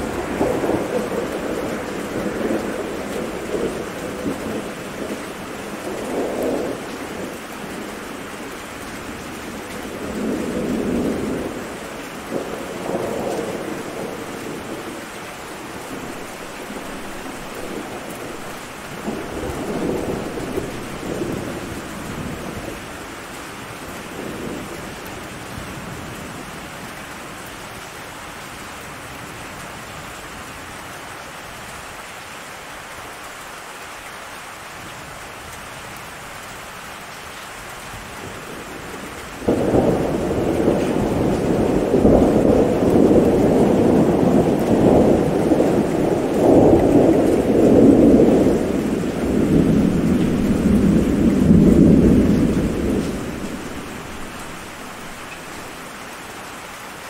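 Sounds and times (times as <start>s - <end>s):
thunder rumbling: 0.0s - 22.8s, 38.2s - 55.9s
steady rain: 0.0s - 57.0s.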